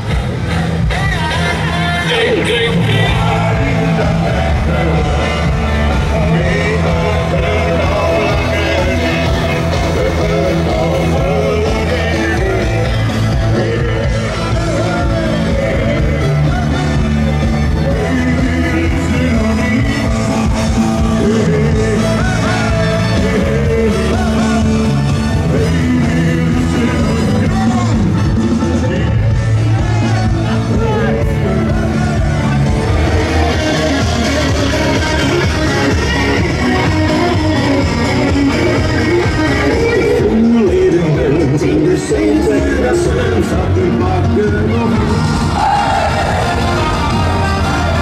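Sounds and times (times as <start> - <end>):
loud rock music with singing: 0.0 - 48.0.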